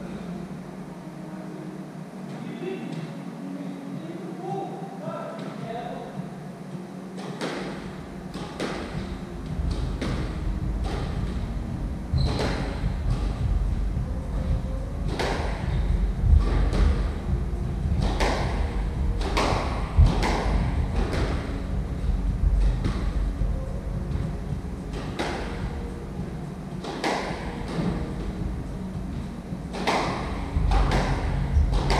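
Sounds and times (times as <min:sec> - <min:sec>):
ball smacking rackets and walls: 0:07.2 - 0:13.5, 0:14.4 - 0:21.8, 0:24.0 - 0:31.9.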